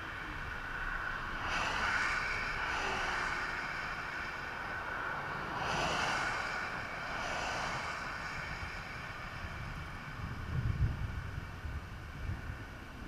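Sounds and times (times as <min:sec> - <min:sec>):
cars passing on highway: 0:00.0 - 0:13.0.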